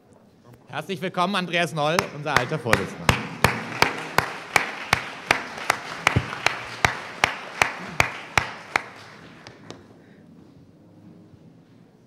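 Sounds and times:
audience clapping: 1.9 - 9.9
sharp hand claps close by: 2.0 - 9.8.

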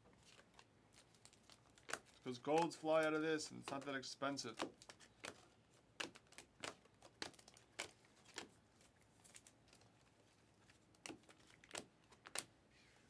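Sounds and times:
cards snapping against cards: 1.9 - 8.5, 11.0 - 12.5.

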